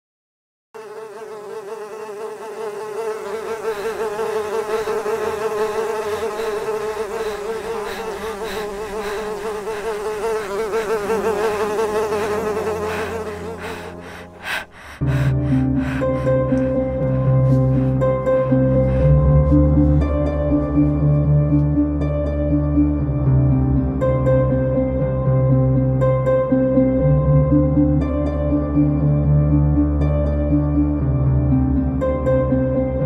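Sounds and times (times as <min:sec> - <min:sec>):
buzzing of flying insects: 0:00.8 - 0:21.0.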